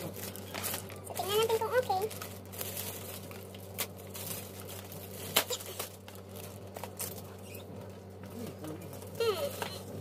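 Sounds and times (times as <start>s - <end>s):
plastic packaging crinkling: 0.0s - 7.6s.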